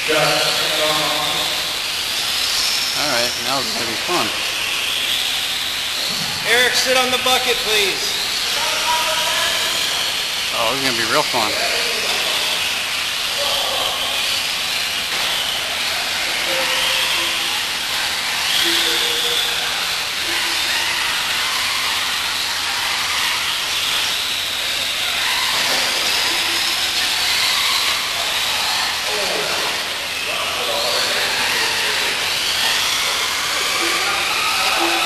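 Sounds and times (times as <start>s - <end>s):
rc cars motor whine: 0.0s - 35.0s.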